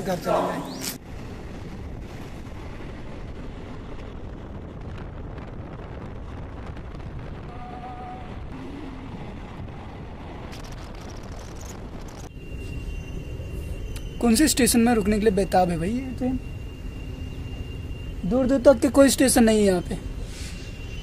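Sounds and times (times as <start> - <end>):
passenger train rumbling: 0.0 - 21.0
wind buffeting microphone: 0.6 - 12.3
faint brief tone: 12.3 - 21.0.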